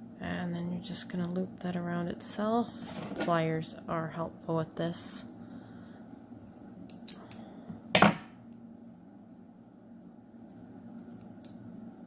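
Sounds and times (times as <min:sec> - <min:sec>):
wire clicking with pliers: 0:10.5 - 0:11.6.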